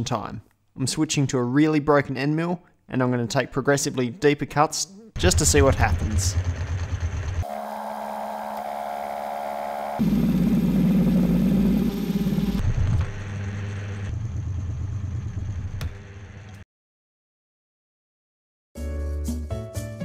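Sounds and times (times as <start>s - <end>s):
milling machine cutting steel: 5.3s - 14.1s.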